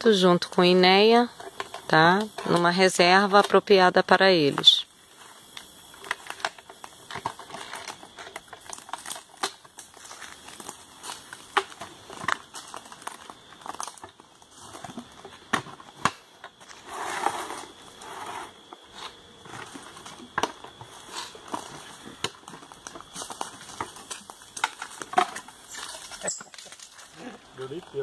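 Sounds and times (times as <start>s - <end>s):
dry leaves crackling and rustling: 5.2s - 15.4s, 19.4s - 27.7s.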